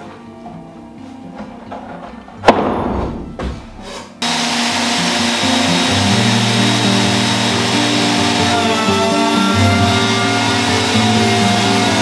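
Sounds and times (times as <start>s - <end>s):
background music: 0.0s - 12.0s
wooden slab landing thump: 2.4s - 3.8s
router with dust extractor: 4.2s - 12.0s.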